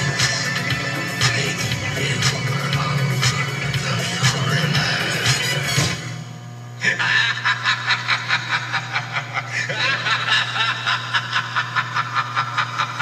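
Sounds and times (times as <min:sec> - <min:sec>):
steady low hum: 0:00.0 - 0:13.0
cackling laugh: 0:06.8 - 0:13.0.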